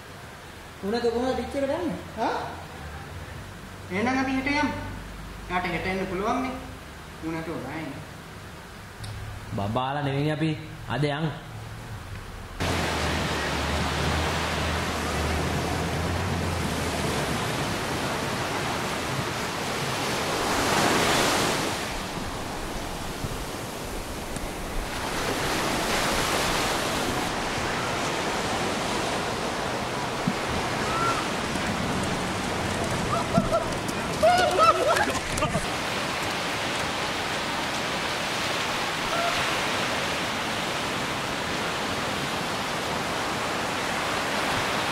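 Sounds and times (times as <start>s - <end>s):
waves washing onto sandy beach: 12.6s - 44.9s.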